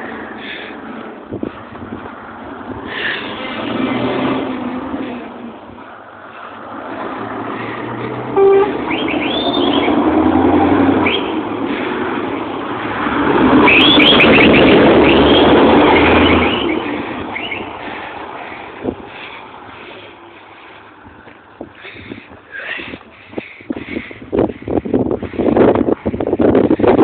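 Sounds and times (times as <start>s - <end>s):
truck driving past: 0.0s - 21.1s
short sharp tone: 8.4s - 9.3s.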